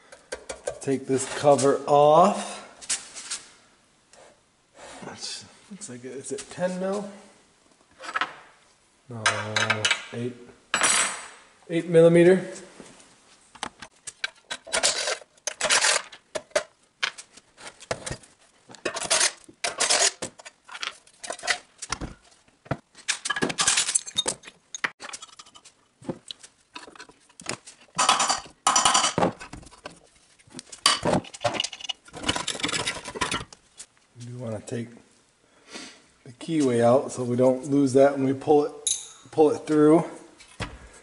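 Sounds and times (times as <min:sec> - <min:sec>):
metal tools clinking and rattling: 0:23.1 - 0:25.7, 0:28.0 - 0:29.2, 0:30.8 - 0:33.5, 0:38.8 - 0:39.3.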